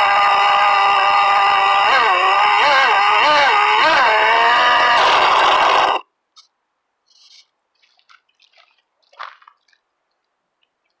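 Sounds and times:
model boat engine at high revs: 0:00.0 - 0:06.0
faint drips and ticks: 0:07.4 - 0:11.0.

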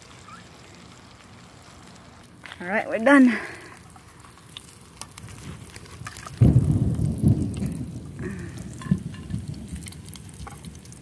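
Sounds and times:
wind buffeting microphone: 0:05.2 - 0:11.0.

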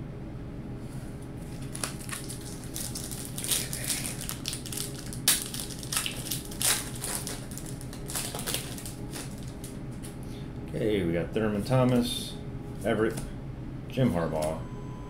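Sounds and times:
card pack wrapper crinkling and tearing: 0:01.4 - 0:09.8.

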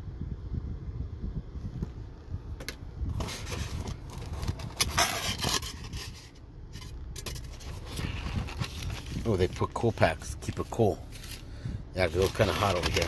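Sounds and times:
low steady rumble: 0:00.0 - 0:13.0
hands scraping styrofoam and cardboard: 0:03.2 - 0:09.7, 0:10.4 - 0:13.0.

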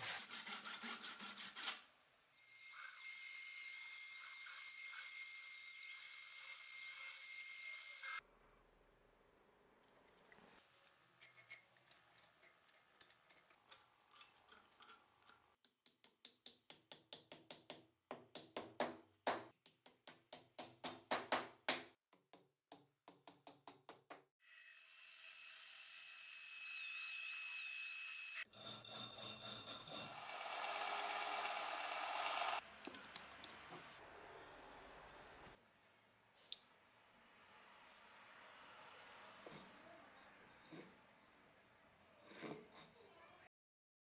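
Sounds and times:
belt sander running: 0:30.1 - 0:32.6.

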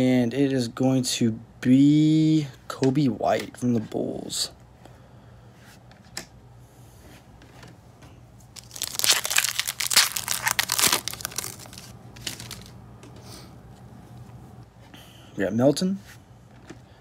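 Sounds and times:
foil wrapper crinkling: 0:08.6 - 0:12.8.

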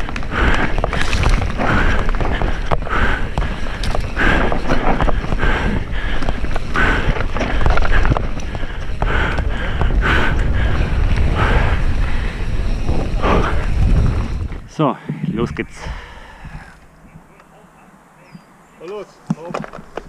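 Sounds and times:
bike rattling over ground: 0:00.0 - 0:14.7
wind rushing over microphone: 0:00.0 - 0:17.4.

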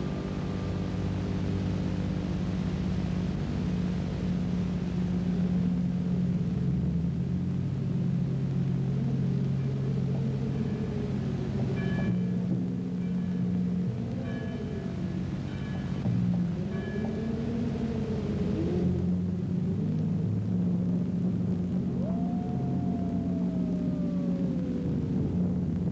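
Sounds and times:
dark low sustained chords: 0:00.0 - 0:25.9
bell-like tones: 0:10.5 - 0:18.7.

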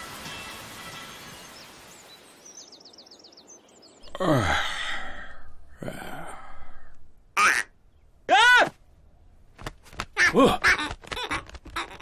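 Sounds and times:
wheezy sighing sounds: 0:04.1 - 0:07.1.

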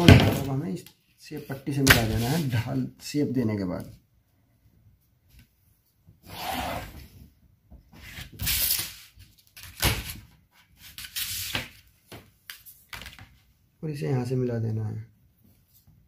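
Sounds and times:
ruler sliding over paper: 0:06.2 - 0:07.0.

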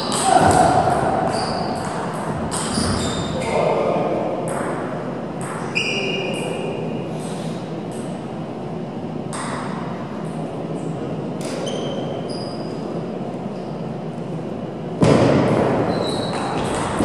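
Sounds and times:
table tennis ball hits: 0:00.0 - 0:03.0
hall background hum: 0:00.0 - 0:17.0.

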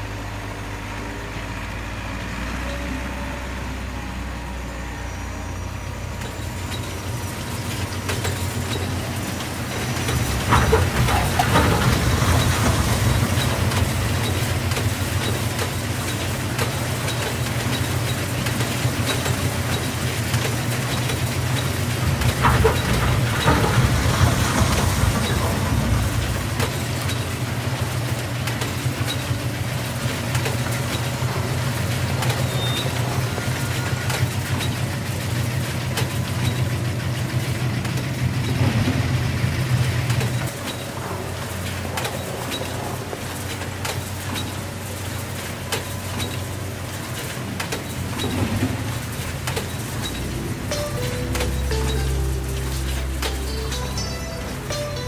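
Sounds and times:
soil and stones rattling: 0:06.2 - 0:29.5.

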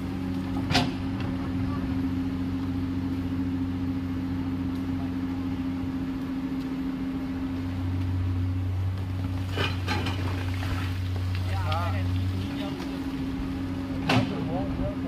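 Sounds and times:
excavator diesel engine humming: 0:00.0 - 0:15.0.

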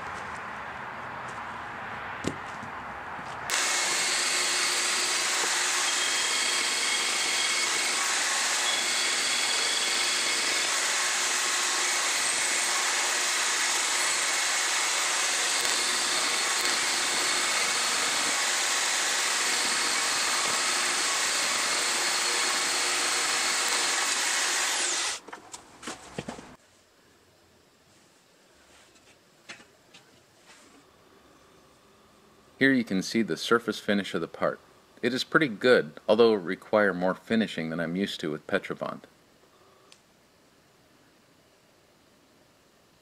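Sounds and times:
band saw cutting metal: 0:03.5 - 0:25.2.

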